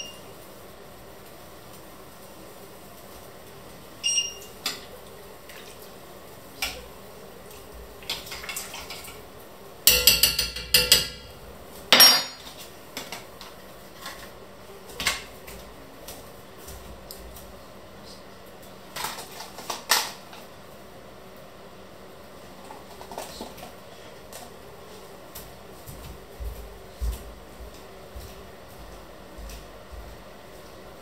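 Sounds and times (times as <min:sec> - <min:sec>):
metal spoon clinking against pot: 0:09.9 - 0:12.5.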